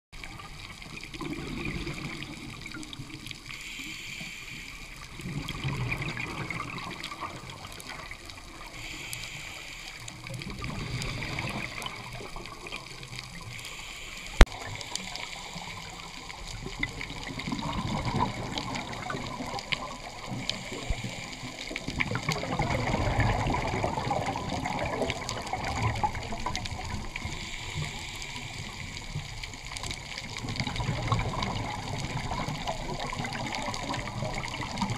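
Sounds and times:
underwater exhaled air bubbling: 0.2s - 34.9s
regulator breathing hiss: 3.4s - 5.2s, 8.6s - 11.8s, 13.3s - 16.1s, 20.4s - 21.8s, 27.1s - 29.4s.

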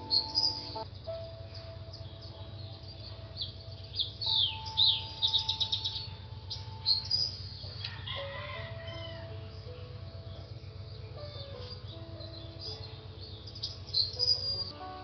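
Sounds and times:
low hum: 0.0s - 7.9s
soft held music notes: 0.0s - 8.0s, 8.8s - 15.0s
birds chirping: 0.0s - 15.0s.

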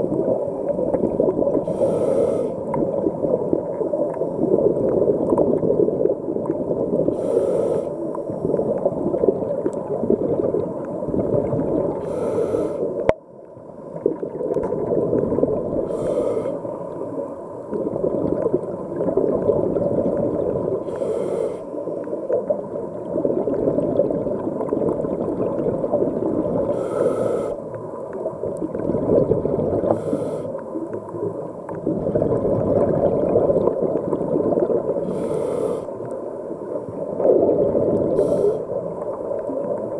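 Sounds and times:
underwater bubbles rumble: 0.0s - 7.3s, 8.0s - 39.9s
hissing diver breaths: 1.6s - 2.8s, 7.1s - 8.4s, 12.0s - 13.0s, 15.8s - 16.9s, 20.8s - 22.0s, 26.6s - 27.8s, 29.8s - 30.7s, 35.0s - 36.3s, 37.9s - 38.8s.

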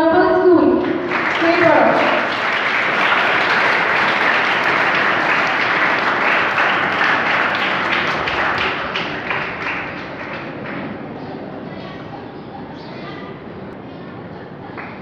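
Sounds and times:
audience applauding: 0.8s - 11.2s.

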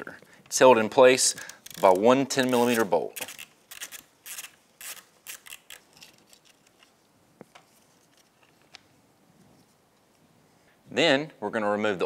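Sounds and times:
hand ratchet clicking: 1.2s - 5.8s.

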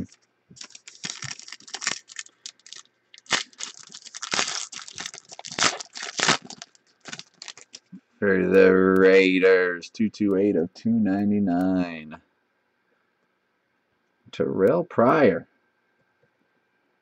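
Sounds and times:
foil wrapper crinkling and tearing: 0.0s - 7.9s.

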